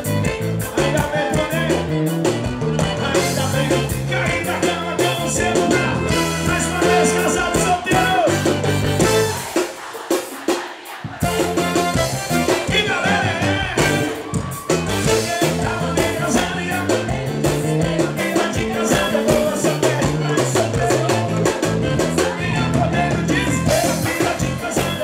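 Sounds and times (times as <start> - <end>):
band playing: 0.0 - 25.0
drums and bass beat: 0.0 - 25.0
male singer: 0.6 - 2.0, 2.9 - 8.4, 12.5 - 14.3, 15.0 - 25.0.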